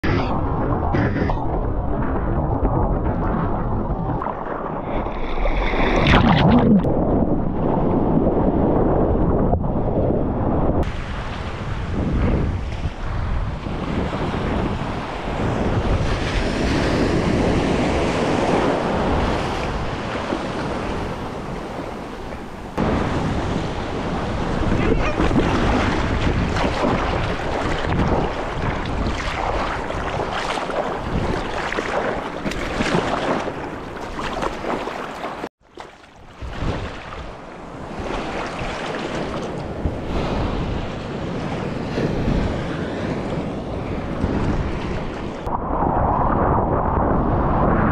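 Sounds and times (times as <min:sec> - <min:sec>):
wind buffeting microphone: 0:00.0 - 0:35.5, 0:36.2 - 0:47.9
seawater splashing around surfboard: 0:02.4 - 0:07.5, 0:22.9 - 0:41.7.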